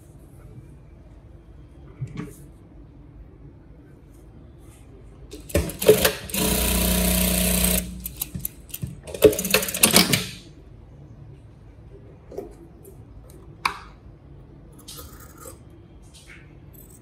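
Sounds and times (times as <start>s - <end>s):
sewing machine stitching: 5.5s - 8.2s, 9.1s - 10.4s.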